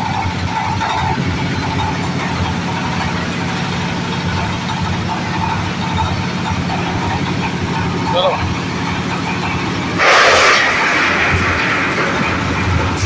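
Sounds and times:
machine engine droning: 0.0 - 13.0.

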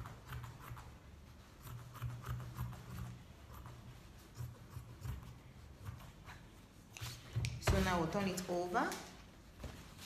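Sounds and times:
scissors snipping fabric: 0.0 - 1.0.

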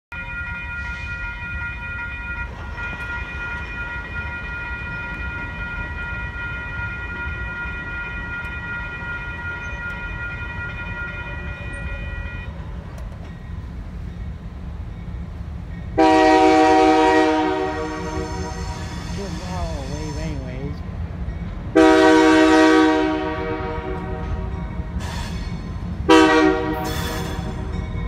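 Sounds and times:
railroad crossing bell ringing: 0.1 - 28.0.

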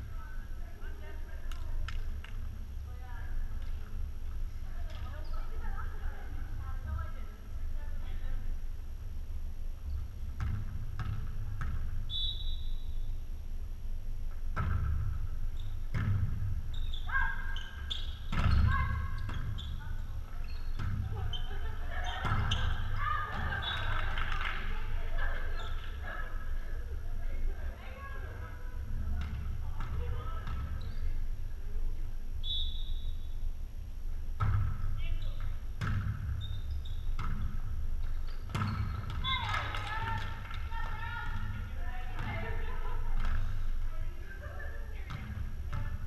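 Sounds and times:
steady low hum: 0.0 - 39.2
ball bouncing on gym floor: 10.3 - 12.0, 14.5 - 15.2, 15.8 - 16.8, 17.6 - 20.0, 20.6 - 23.8, 34.4 - 43.6, 45.0 - 46.0
referee's whistle blast: 12.1 - 12.9, 32.4 - 33.2
volleyball hits: 34.4 - 36.4, 37.1 - 43.6
players' voices: 39.2 - 46.0.

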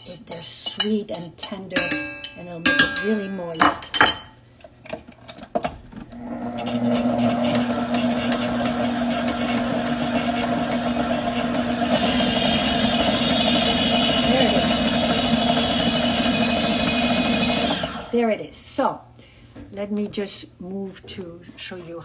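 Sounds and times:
stand mixer motor humming: 6.2 - 18.1
high-pitched mixer whine: 6.2 - 18.2.

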